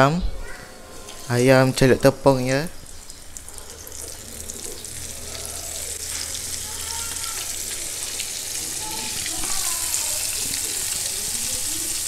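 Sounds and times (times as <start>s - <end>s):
chicken deep-frying in oil: 2.8s - 12.0s.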